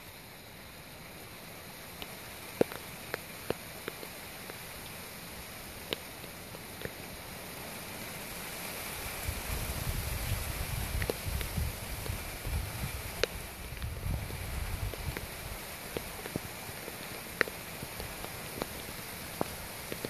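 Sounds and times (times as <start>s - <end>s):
rain hissing: 0.0s - 20.0s
sharp ticks: 2.0s - 7.2s, 10.9s - 20.0s.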